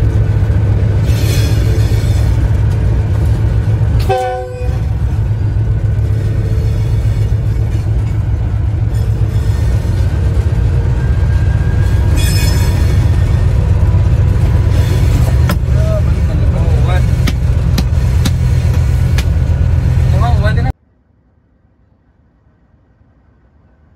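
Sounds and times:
locomotive engine rumble: 0.0s - 23.9s
locomotive horn chord: 4.0s - 4.9s.

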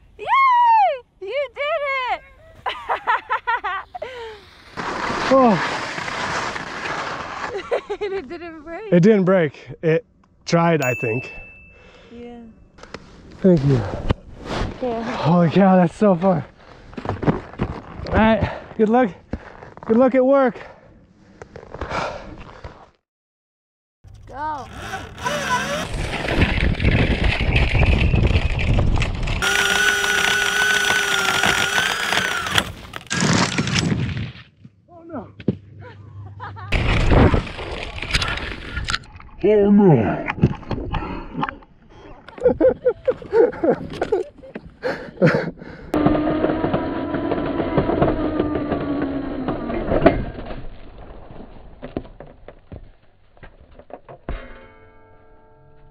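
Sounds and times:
skis sliding over snow: 3.9s - 8.2s
low rumble of wind: 24.1s - 29.4s
electric motor whine: 24.8s - 26.1s, 29.4s - 33.0s.

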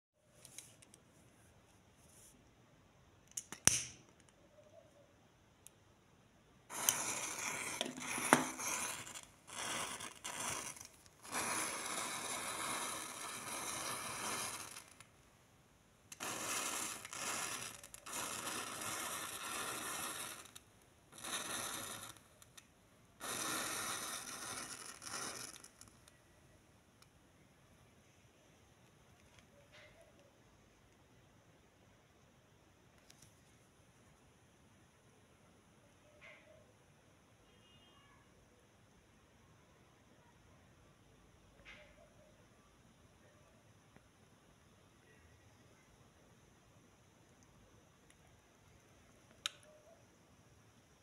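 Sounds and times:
match strike: 3.3s - 4.1s, 6.7s - 15.1s, 16.1s - 26.2s.

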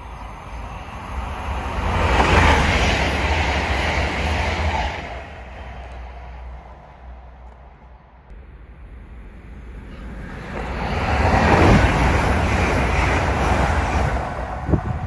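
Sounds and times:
train passing at speed: 0.0s - 15.0s
steady low rumble: 5.1s - 15.0s.

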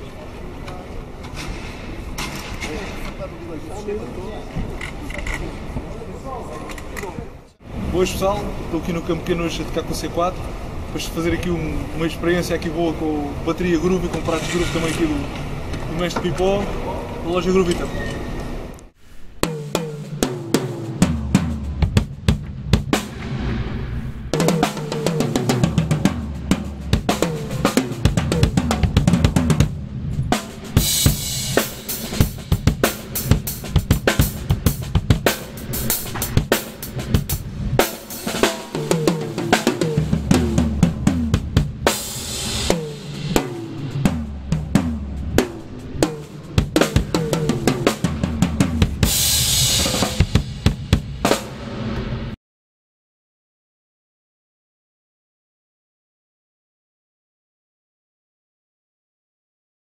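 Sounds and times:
drum kit groove: 19.4s - 23.5s, 24.3s - 52.0s
cymbal crashes: 19.4s - 52.4s
low bass notes: 19.6s - 37.8s, 38.7s - 51.1s.

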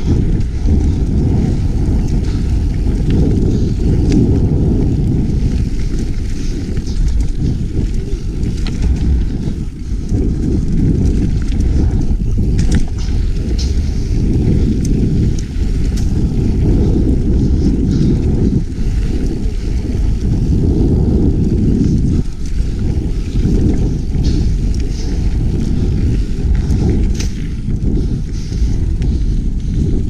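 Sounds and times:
bike clicks and rattles: 0.0s - 30.0s
bike tyre rumble: 0.0s - 30.0s
wind buffeting microphone: 0.0s - 30.0s.

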